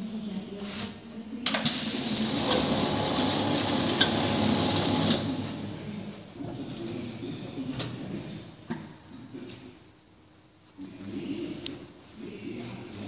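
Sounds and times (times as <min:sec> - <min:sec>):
conveyor machine whining: 0:01.5 - 0:06.8.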